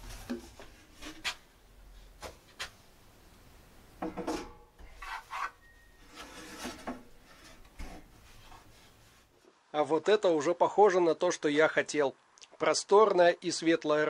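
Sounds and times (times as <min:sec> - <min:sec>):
boards scraping on metal: 0:04.8 - 0:09.0.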